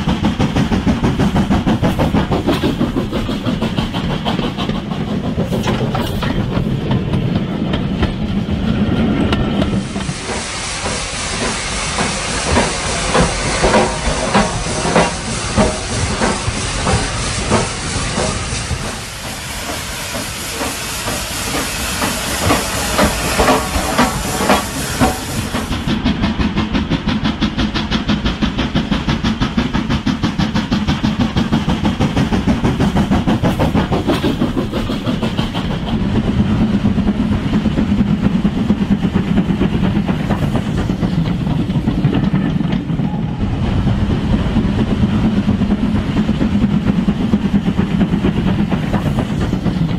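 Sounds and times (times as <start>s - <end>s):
steam locomotive chuffing: 0.0s - 49.9s
low rumble: 41.5s - 47.1s.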